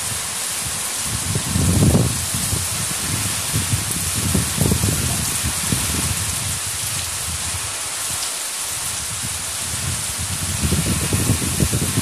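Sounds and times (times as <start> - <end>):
heavy rain pouring: 0.0 - 12.0
wind buffeting microphone: 0.0 - 12.0.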